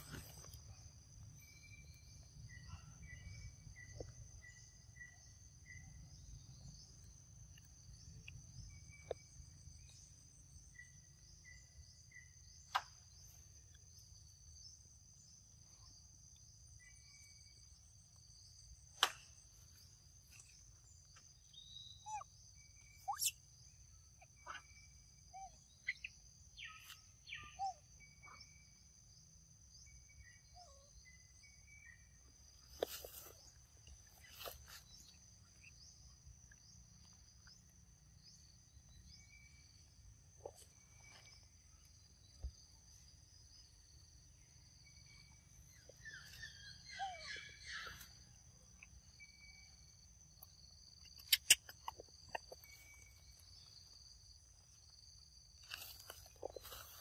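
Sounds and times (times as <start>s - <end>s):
insects droning high-pitched: 0.0s - 57.0s
sharp clicks: 51.2s - 52.6s.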